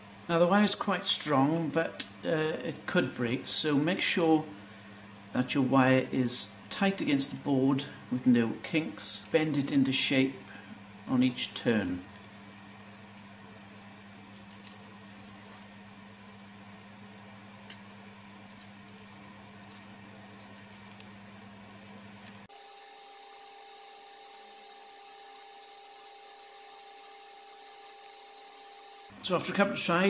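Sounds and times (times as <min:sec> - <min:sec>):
steady electrical hum: 0:00.0 - 0:30.0
wire ticks and scratches: 0:09.0 - 0:10.5, 0:11.6 - 0:21.5, 0:22.1 - 0:22.5, 0:23.2 - 0:28.5.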